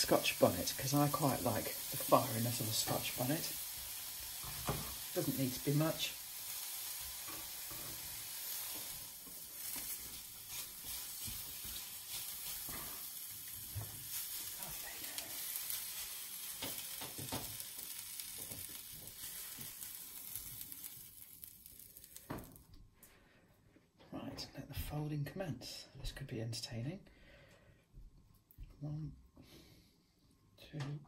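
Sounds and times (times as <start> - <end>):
vegetables sizzling in a frying pan: 0.0 - 22.6
spatula scraping a pan: 7.0 - 17.4.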